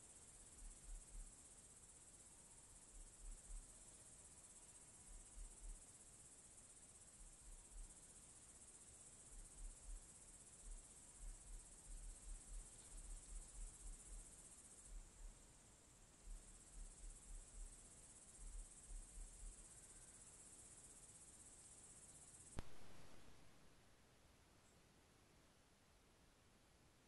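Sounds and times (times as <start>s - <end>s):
crickets chirring: 0.0s - 23.6s
soft low thumps: 0.6s - 1.3s, 2.9s - 3.7s, 5.1s - 5.8s, 9.3s - 15.4s, 16.2s - 19.7s, 22.6s - 23.4s.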